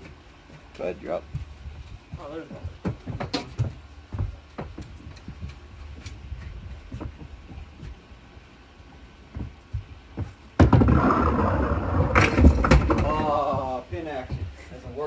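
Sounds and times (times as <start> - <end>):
bowling ball rolling down lane: 10.6 - 13.4
ball rolling in return trough: 10.6 - 13.7.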